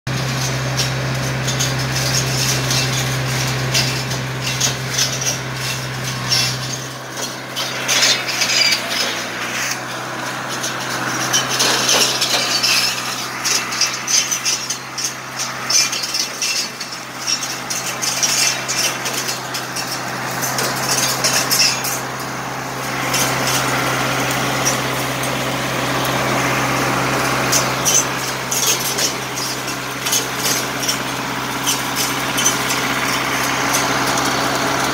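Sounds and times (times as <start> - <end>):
tractor diesel engine running: 0.0 - 34.9
saw blades cutting branches: 0.1 - 34.9.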